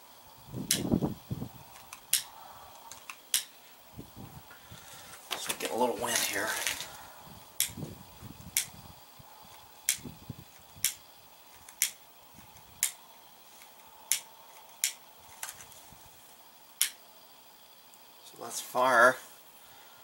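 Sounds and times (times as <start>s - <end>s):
lighter trigger clicking: 0.6s - 0.9s, 1.8s - 2.3s, 9.9s - 10.1s, 10.8s - 11.0s, 11.7s - 13.0s, 14.1s - 15.0s, 16.8s - 17.0s.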